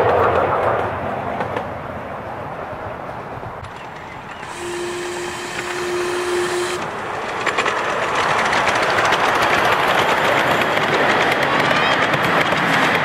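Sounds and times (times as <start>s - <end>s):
train wheels clicking over rails: 0.0s - 1.9s, 3.1s - 13.0s
steam locomotive whistle: 4.4s - 7.1s.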